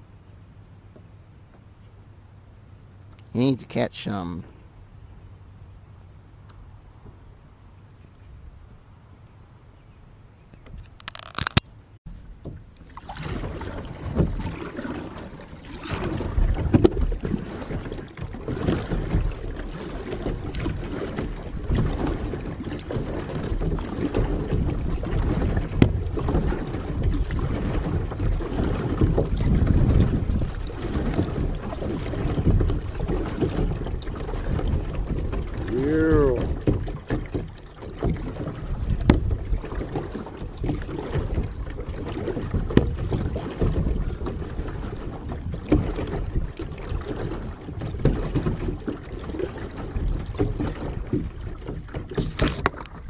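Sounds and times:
water sloshing around kayak: 0:10.6 - 0:53.0.

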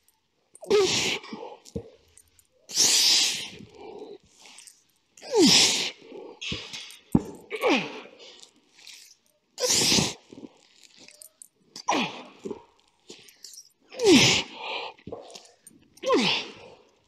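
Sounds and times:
man breathing and grunting: 0:02.8 - 0:08.6, 0:09.6 - 0:16.9.

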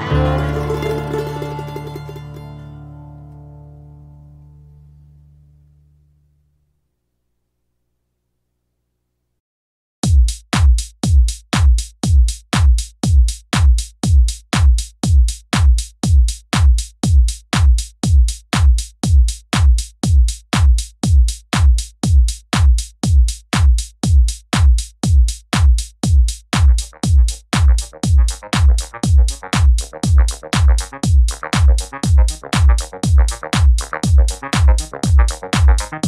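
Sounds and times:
electronic dance music: 0:00.0 - 0:02.0, 0:26.6 - 0:36.0
heavy kick drum: 0:10.0 - 0:36.0.

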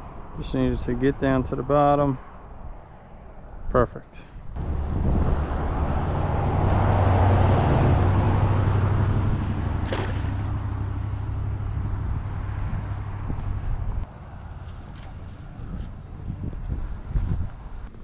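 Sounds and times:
vehicle passing by: 0:04.6 - 0:17.9
net splashing into water: 0:09.4 - 0:10.8.

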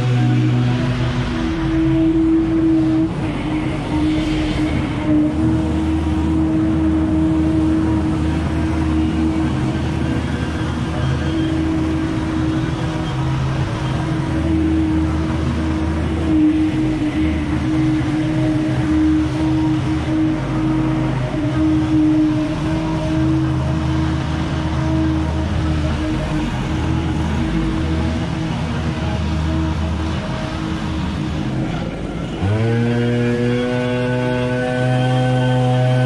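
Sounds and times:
leaf blowers running: 0:32.3 - 0:36.0.

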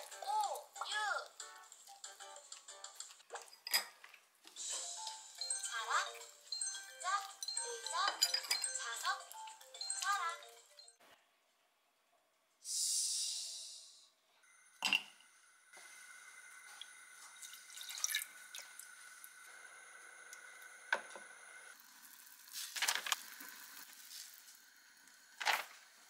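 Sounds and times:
broth pouring into pot: 0:16.0 - 0:20.9, 0:21.6 - 0:26.0
small splashes: 0:17.4 - 0:18.9.

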